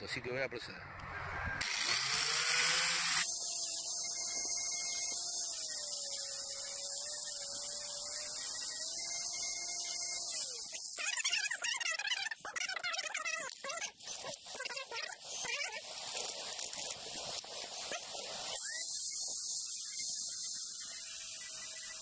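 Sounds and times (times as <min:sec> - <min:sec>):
grinder motor whine: 0:01.0 - 0:12.5, 0:18.5 - 0:22.0.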